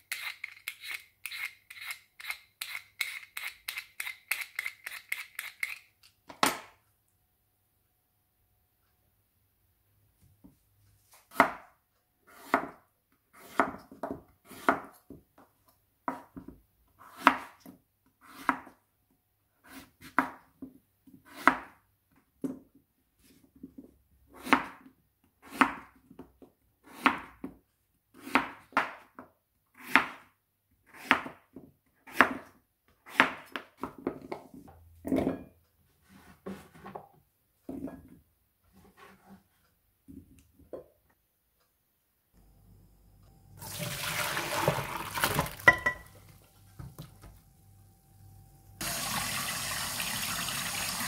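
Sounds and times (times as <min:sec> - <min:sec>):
knife chopping on cutting board: 0:11.3 - 0:12.8, 0:13.4 - 0:15.0, 0:17.0 - 0:18.7, 0:21.2 - 0:21.8, 0:24.4 - 0:25.9, 0:26.8 - 0:27.5, 0:28.1 - 0:29.2, 0:29.8 - 0:30.3, 0:30.9 - 0:31.4, 0:32.0 - 0:34.1.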